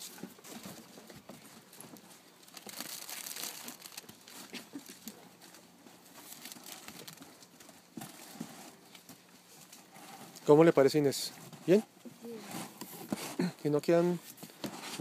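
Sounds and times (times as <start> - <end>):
cellophane crinkling: 1.8 - 9.1.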